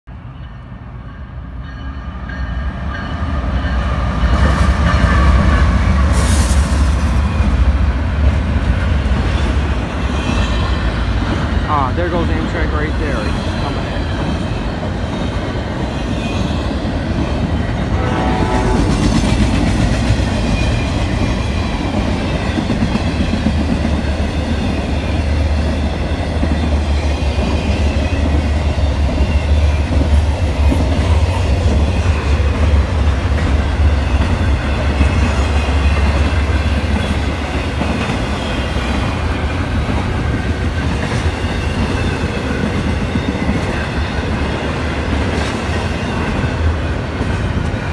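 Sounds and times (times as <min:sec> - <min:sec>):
deep train rumble: 0:00.1 - 0:47.9
diesel locomotives passing: 0:00.1 - 0:47.9.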